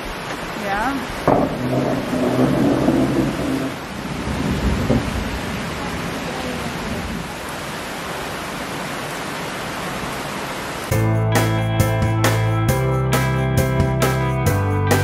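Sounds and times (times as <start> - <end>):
heavy rain pouring: 0.0 - 10.9.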